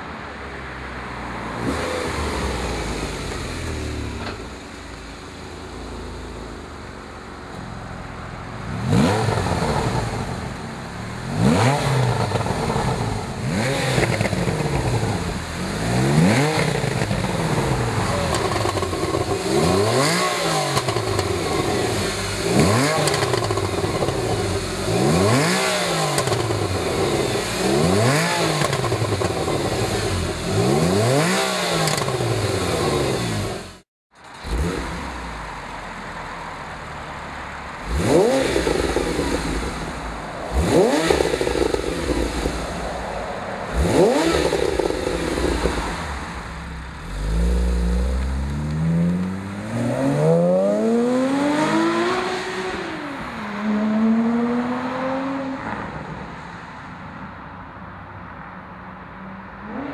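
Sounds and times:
car engine revving: 8.6s - 36.2s, 37.8s - 55.8s
car engine idling: 9.4s - 19.9s.

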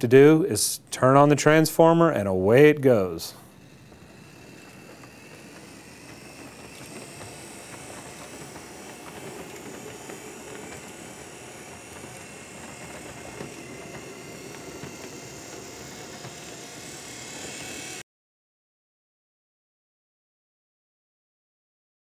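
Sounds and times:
wheels clicking on rails: 0.2s - 18.0s
model train motor humming: 1.0s - 18.0s.

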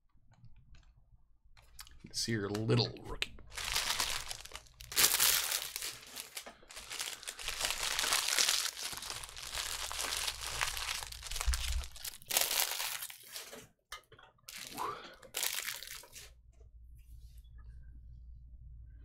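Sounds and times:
plastic wrappers crinkling: 3.4s - 13.7s, 14.5s - 16.3s.

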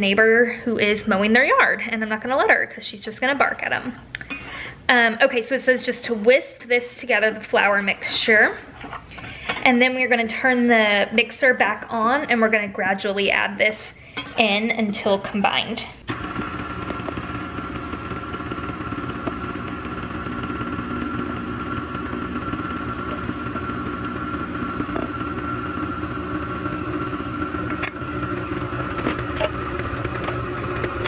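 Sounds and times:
stand mixer motor humming: 16.0s - 31.0s.

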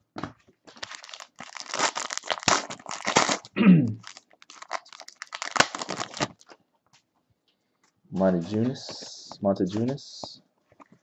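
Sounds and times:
foil wrapper crinkling: 0.7s - 6.6s.

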